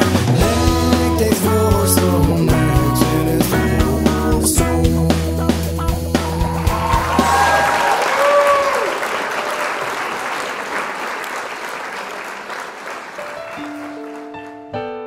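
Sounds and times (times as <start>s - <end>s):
audience applause: 6.2s - 14.6s
piano notes: 13.2s - 15.0s.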